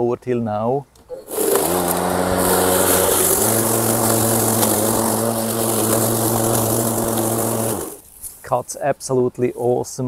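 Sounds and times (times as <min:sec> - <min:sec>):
electric lawn mower running: 0:01.1 - 0:08.0.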